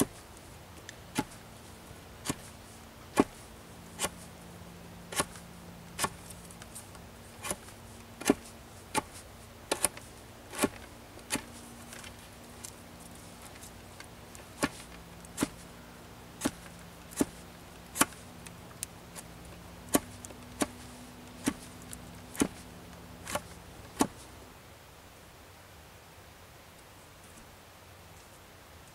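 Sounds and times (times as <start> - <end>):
knife whittling wood: 4.0 - 4.3, 6.0 - 6.3, 7.4 - 12.2, 16.4 - 18.2, 19.1 - 22.6.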